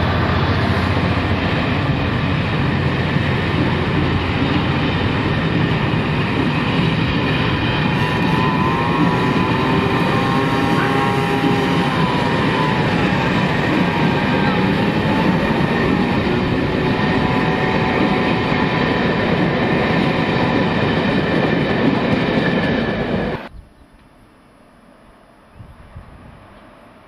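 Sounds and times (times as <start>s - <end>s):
train wheels rumbling on rails: 0.0s - 23.5s
wavering wheel squeal: 8.0s - 14.8s.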